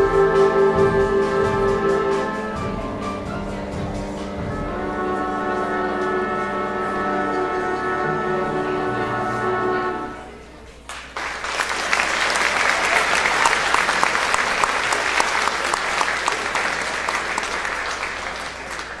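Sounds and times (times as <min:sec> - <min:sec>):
audience applauding: 0:10.9 - 0:19.0.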